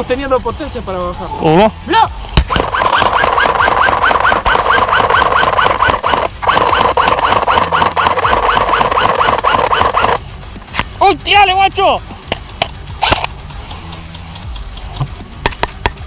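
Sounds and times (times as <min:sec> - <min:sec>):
airsoft rifle full-auto bursts: 0:02.5 - 0:10.2.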